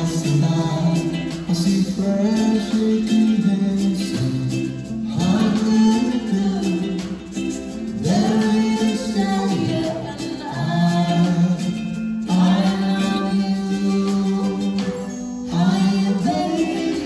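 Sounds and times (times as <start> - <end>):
plucked string accompaniment: 0.0 - 17.0
person singing long gliding notes: 8.0 - 17.0.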